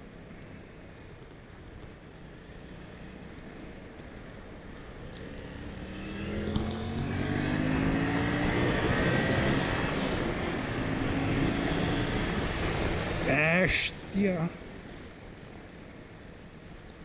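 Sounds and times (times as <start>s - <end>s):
motorcycle engine accelerating: 5.0s - 13.2s.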